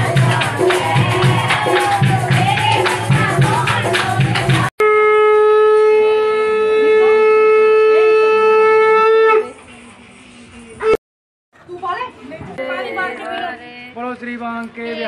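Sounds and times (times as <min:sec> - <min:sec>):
conch shell blown: 0:04.8 - 0:09.6.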